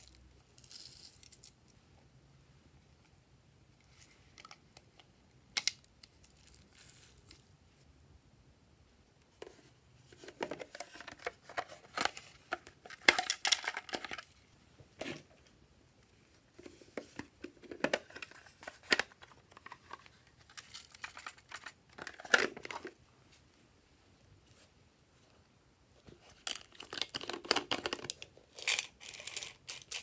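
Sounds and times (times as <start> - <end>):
plastic containers clicking and rustling: 9.4 - 14.3, 16.6 - 23.0, 26.3 - 30.0.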